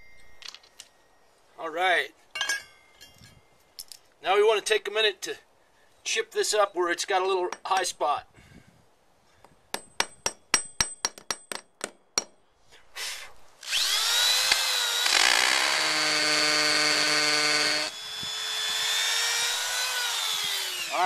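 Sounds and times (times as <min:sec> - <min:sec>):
hammer striking stone: 0:09.8 - 0:12.4
cordless drill whining: 0:13.6 - 0:21.0.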